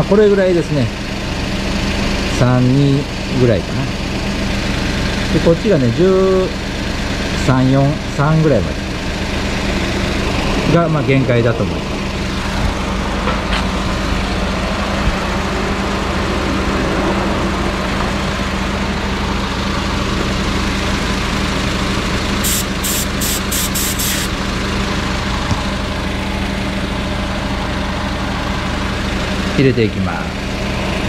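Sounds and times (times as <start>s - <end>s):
small car engine idling: 0.0s - 31.0s
short high-pitched hisses: 22.4s - 24.3s.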